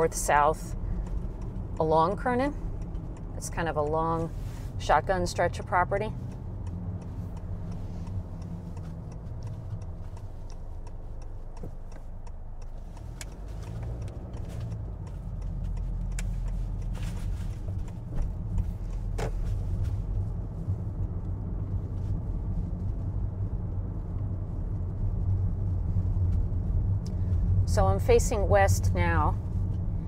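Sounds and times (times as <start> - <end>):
car engine and road rumble: 0.0 - 30.0.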